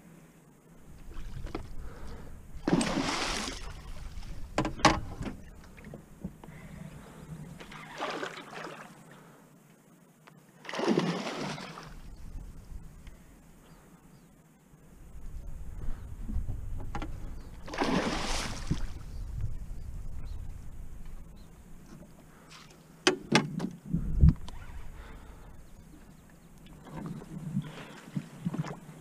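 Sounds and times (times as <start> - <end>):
fish splashing in water: 2.6 - 4.3, 17.7 - 18.9.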